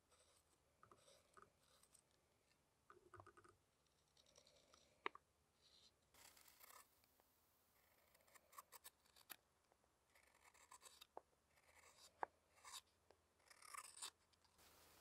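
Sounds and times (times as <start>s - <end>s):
knife scraping wood: 5.7s - 6.9s, 10.2s - 12.9s, 13.5s - 15.0s.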